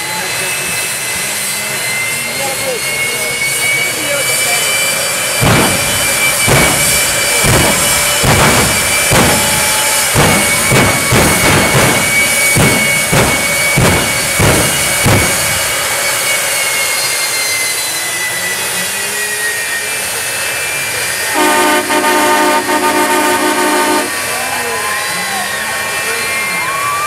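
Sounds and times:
jet engine turbine whine: 0.0 - 27.0
multi-tone air horn blaring: 21.3 - 24.7.

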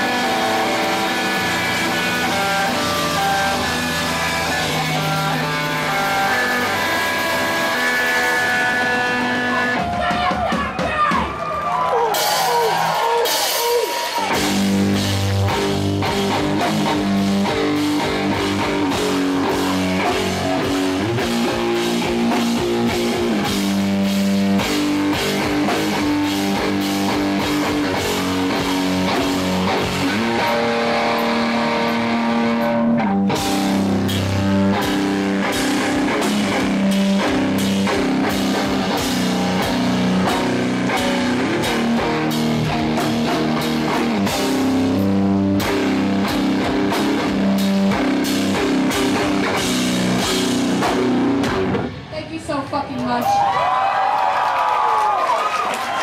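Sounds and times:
punk band playing: 0.0 - 56.0.

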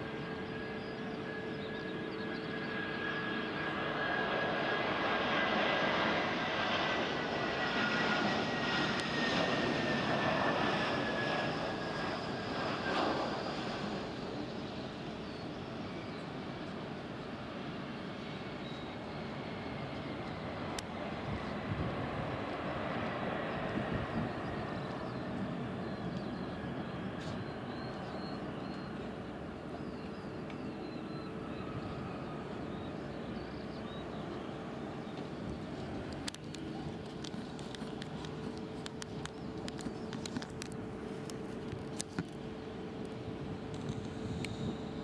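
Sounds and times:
distant jet engines whining: 0.0 - 45.0
wind rumbling on microphone: 21.0 - 22.7, 23.3 - 25.7, 43.4 - 45.0
wind noise on microphone: 21.2 - 22.4, 23.7 - 24.6
faint bird chirps: 22.8 - 36.0.

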